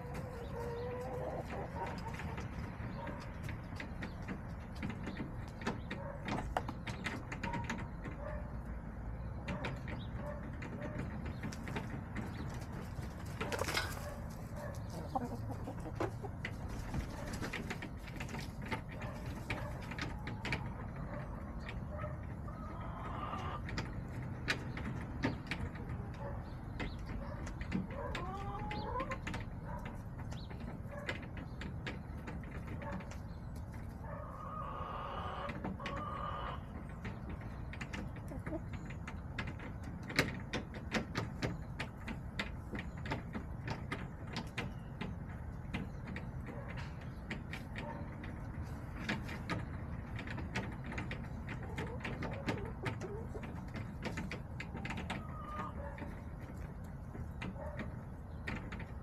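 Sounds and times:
hens calling softly: 0.0s - 3.5s, 54.7s - 56.6s.

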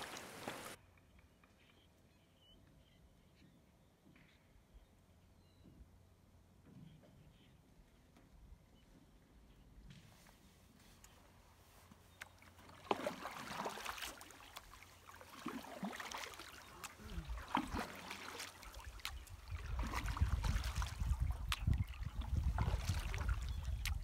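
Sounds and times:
paddle strokes in water: 0.0s - 0.8s, 11.6s - 24.0s.

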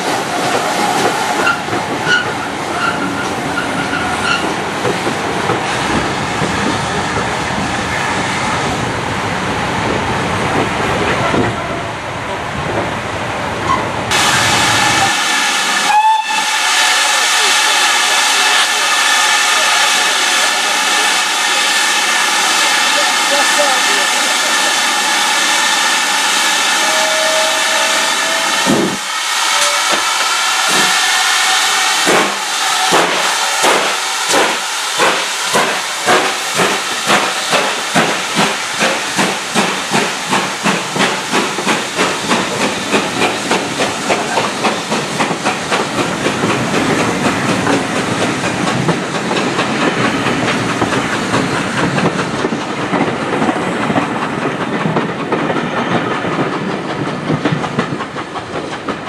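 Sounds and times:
steam locomotive chuffing: 13.7s - 59.0s
steam hissing: 14.1s - 59.0s
carriages rumbling and clattering: 36.6s - 59.0s.

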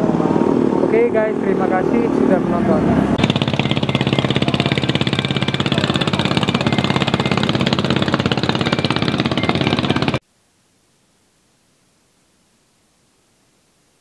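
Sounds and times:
engine chugging: 0.7s - 10.2s.

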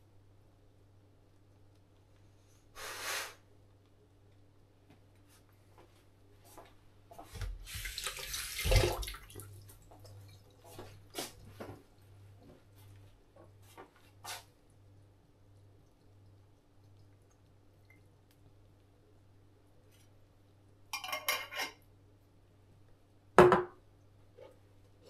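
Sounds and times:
water running: 7.2s - 18.9s
knock: 23.4s - 23.8s.

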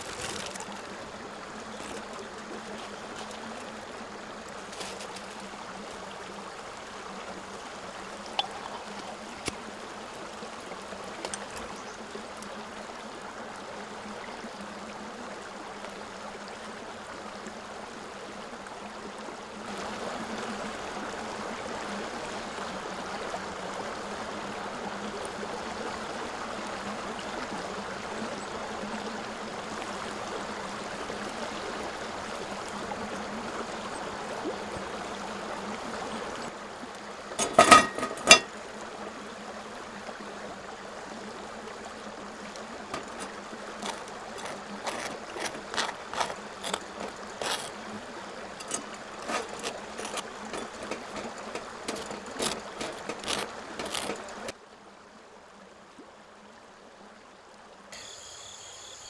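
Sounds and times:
knife spreading butter on toast: 43.0s - 47.7s, 48.6s - 51.3s, 51.9s - 54.2s.

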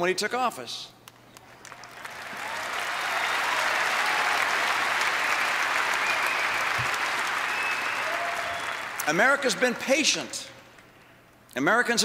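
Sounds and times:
audience applauding: 1.3s - 10.1s.

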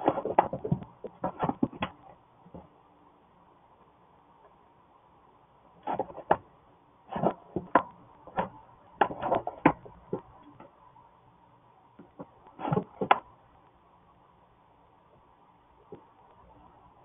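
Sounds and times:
straw rustling and scratching: 5.8s - 6.4s, 7.1s - 10.3s.

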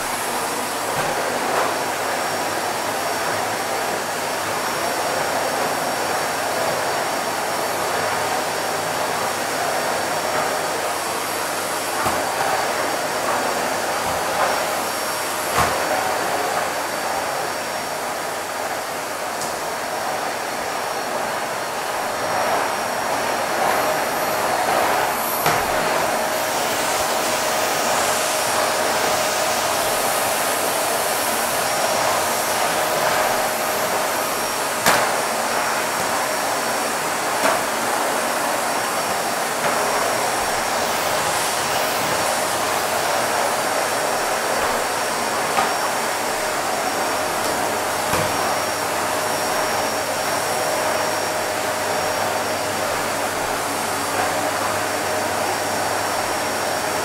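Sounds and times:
vacuum cleaner running: 0.0s - 57.0s.

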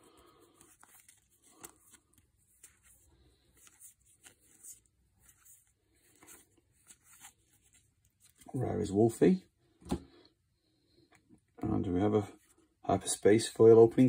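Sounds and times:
trading cards sliding: 0.3s - 8.4s.

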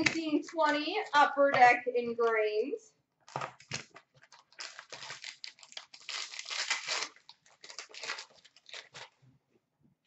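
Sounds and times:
wrapper tearing and crinkling: 3.3s - 9.2s.

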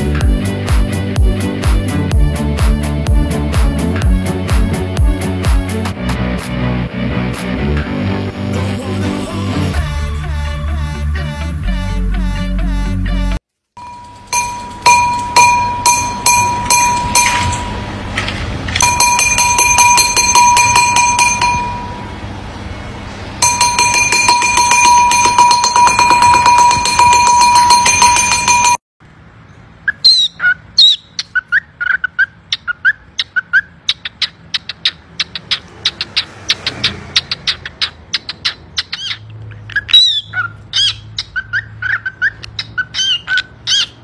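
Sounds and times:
beak tapping a ringing porcelain bowl: 13.8s - 17.9s, 18.8s - 22.0s, 23.4s - 28.8s.

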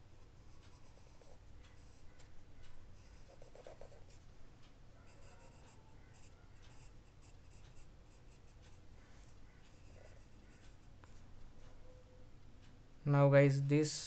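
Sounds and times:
pencil scratching on paper: 0.5s - 2.0s, 3.0s - 4.2s, 5.0s - 10.8s.

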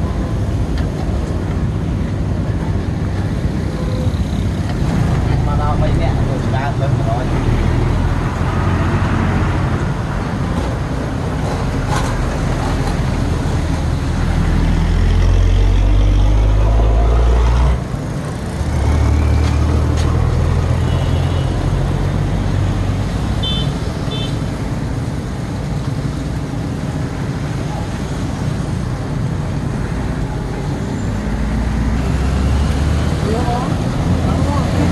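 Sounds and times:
large vehicle engine humming: 0.0s - 34.9s
road traffic: 0.0s - 34.9s.

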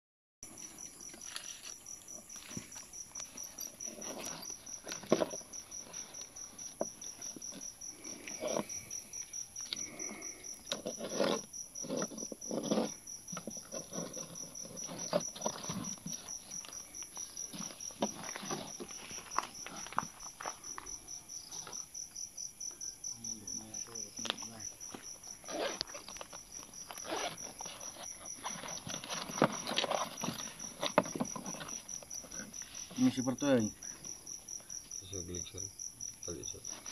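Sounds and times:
crickets chirping: 0.4s - 36.9s
handling rustles and knocks: 0.6s - 9.9s, 10.6s - 20.9s, 24.2s - 33.2s.

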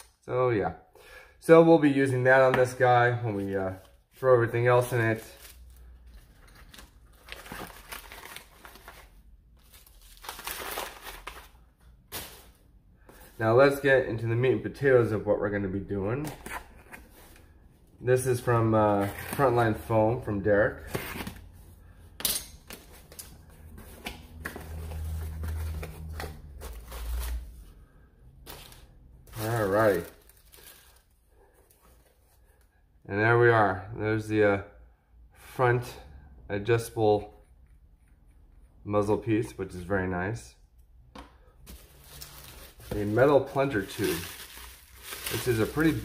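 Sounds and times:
paper and plastic crinkling: 3.3s - 12.6s, 22.7s - 27.6s, 28.4s - 32.6s, 41.7s - 46.0s.

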